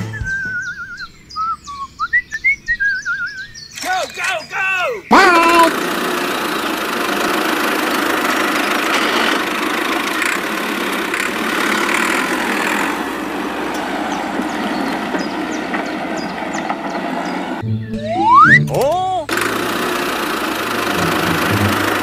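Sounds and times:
small electric motor whirring: 0:05.6 - 0:13.8, 0:19.3 - 0:22.0.

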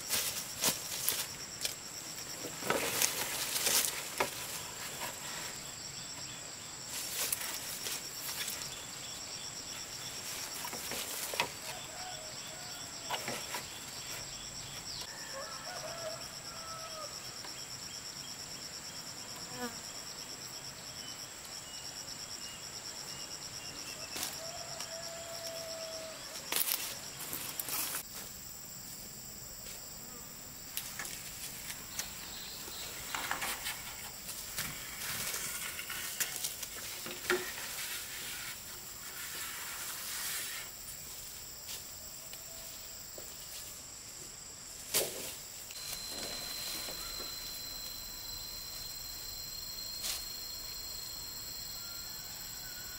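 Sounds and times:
insects chirring: 0:00.0 - 0:52.9
thin high whine: 0:45.7 - 0:52.9.

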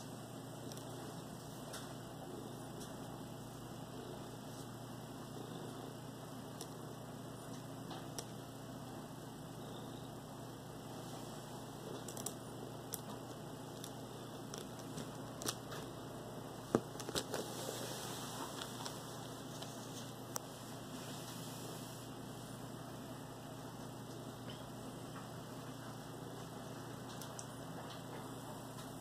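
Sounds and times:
room hum: 0:00.0 - 0:29.0
bedding rustling: 0:16.6 - 0:22.0.

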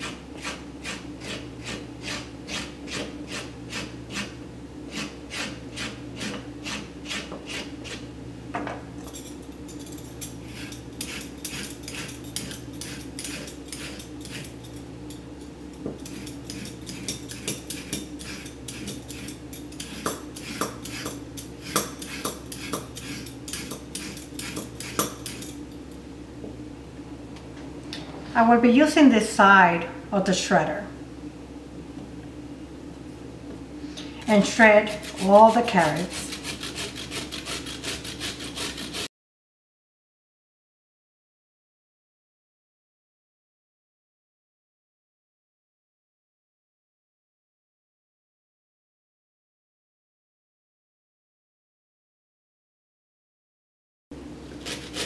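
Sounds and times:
knife scraping carrot skin: 0:09.8 - 0:15.2, 0:16.0 - 0:25.5, 0:34.2 - 0:39.1, 0:54.5 - 0:55.0.

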